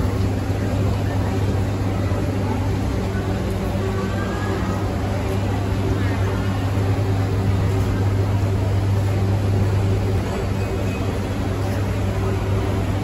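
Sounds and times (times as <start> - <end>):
low machine hum: 0.0 - 13.0
noisy background: 0.0 - 13.0.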